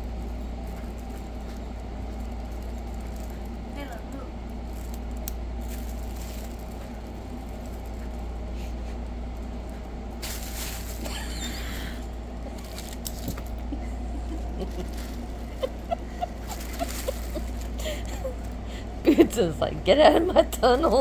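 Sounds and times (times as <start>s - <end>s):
fabric tunnel rustling: 0.0s - 11.7s, 14.5s - 18.7s
steady low hum: 0.0s - 21.0s.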